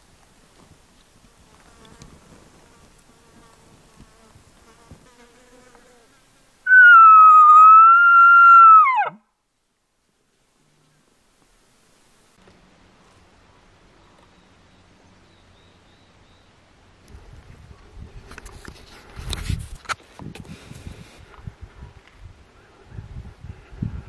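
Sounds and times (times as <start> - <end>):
elk call whistle: 6.7 - 9.2.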